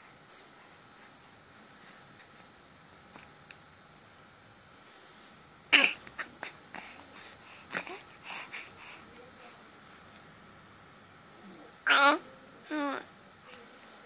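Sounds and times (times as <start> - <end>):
baby grunts and breaths: 5.7 - 9.1.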